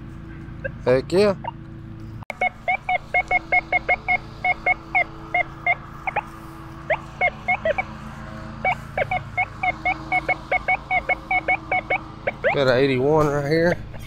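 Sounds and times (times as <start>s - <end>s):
steady low hum: 0.0s - 14.0s
metal detector beeping: 2.3s - 7.9s, 8.6s - 12.8s.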